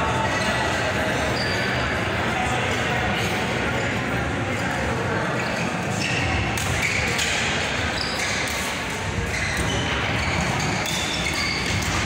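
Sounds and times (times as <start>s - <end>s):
echoing hall noise: 0.0s - 12.0s
shoes squeaking on court: 1.2s - 1.9s, 5.4s - 12.0s.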